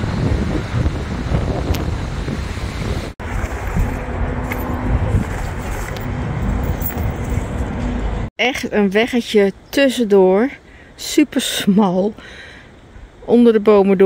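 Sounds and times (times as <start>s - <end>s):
wind rumble on microphone: 0.0s - 8.3s
road traffic noise: 0.0s - 13.2s.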